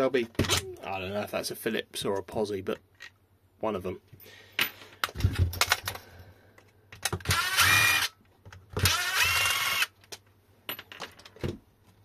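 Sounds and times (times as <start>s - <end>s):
electric screwdriver running: 7.2s - 8.1s, 8.8s - 9.9s.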